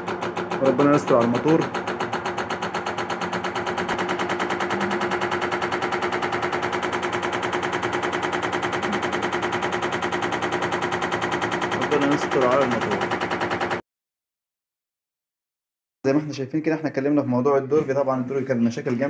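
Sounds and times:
washing machine drum knocking: 0.0s - 13.8s
washing machine hum: 0.0s - 13.8s.

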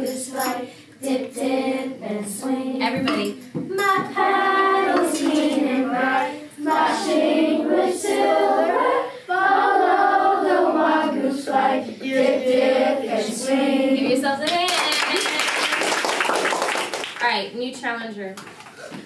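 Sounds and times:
children singing together: 0.0s - 3.1s, 3.7s - 14.2s.

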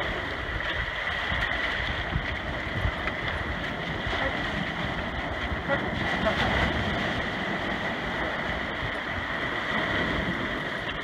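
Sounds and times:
surf washing among rocks: 0.0s - 11.0s
wind buffeting microphone: 0.0s - 11.0s.

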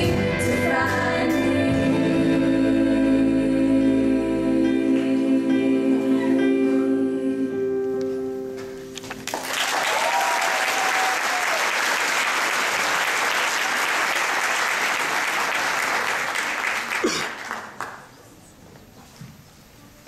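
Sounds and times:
singers in close harmony: 0.0s - 8.0s
audience applause: 9.2s - 18.2s
person cheering: 9.7s - 11.7s.

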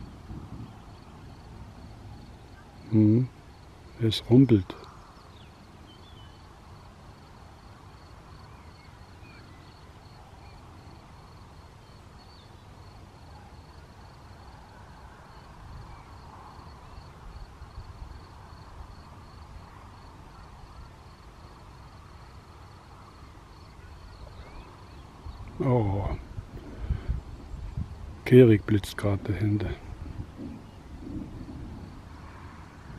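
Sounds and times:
low thunder rumble: 0.0s - 3.4s, 29.2s - 32.9s
faint bird calls: 0.0s - 6.6s, 7.6s - 17.6s, 19.6s - 27.8s
insect chirping: 0.0s - 32.9s.

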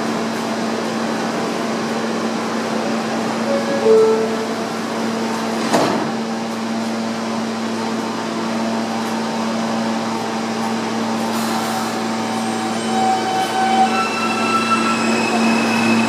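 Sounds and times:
subway car air-conditioning hum: 0.0s - 12.3s.

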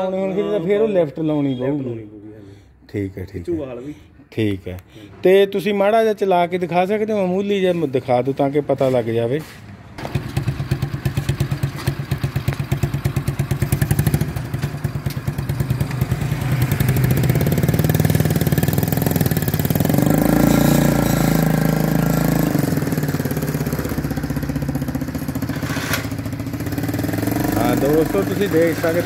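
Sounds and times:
motorcycle engine idling and revving: 10.0s - 29.0s.

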